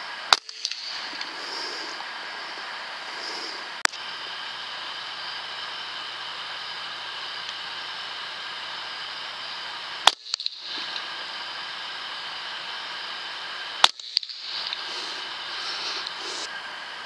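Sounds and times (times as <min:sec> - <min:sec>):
steady hiss: 0:00.0 - 0:17.0
air rifle shots: 0:00.3 - 0:01.9, 0:10.0 - 0:11.2, 0:13.8 - 0:16.3
small clicks: 0:10.0 - 0:11.1.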